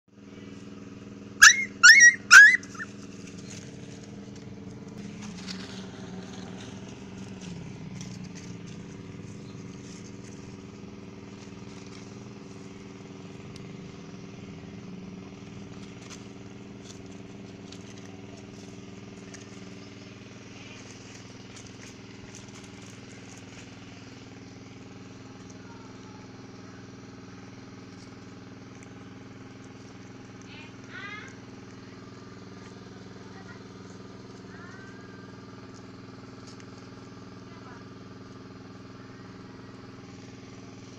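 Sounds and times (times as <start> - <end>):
low motor drone: 0.2 - 40.9
puppy yelping: 1.4 - 3.2.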